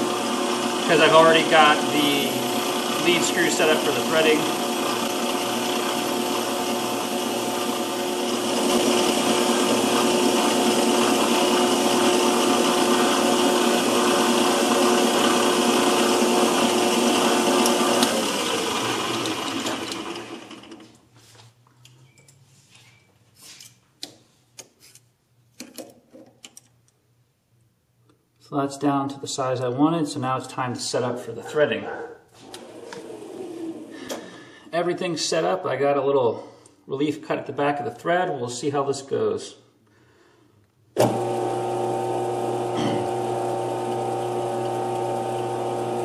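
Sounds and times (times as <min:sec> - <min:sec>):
metal lathe whining: 0:00.0 - 0:20.8, 0:41.0 - 0:46.0.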